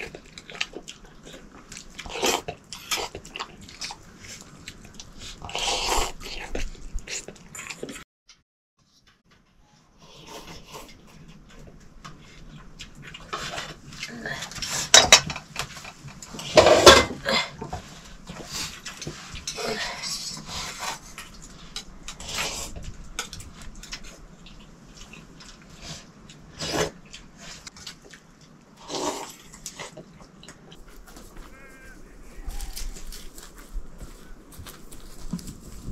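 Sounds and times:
cutlery clinking on dishes: 14.8s - 17.2s.

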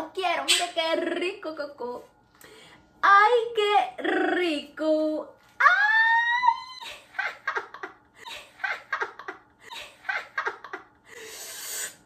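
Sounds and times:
person laughing: 6.6s - 11.5s
breathy hiss: 11.1s - 12.0s.

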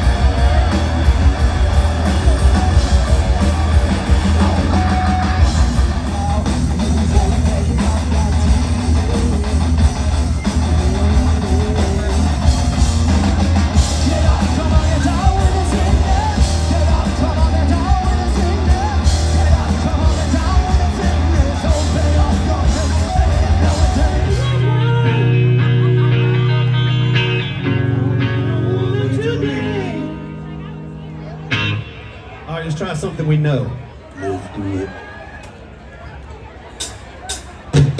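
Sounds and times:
singer belting: 0.0s - 30.9s
heavy metal band playing: 0.0s - 33.8s, 36.8s - 37.9s
ringing guitar notes: 23.6s - 32.5s.

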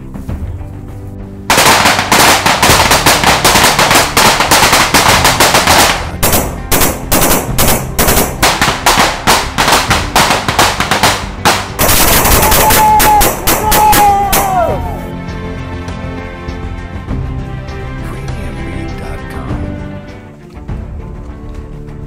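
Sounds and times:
automatic rifle fire: 1.5s - 14.5s.

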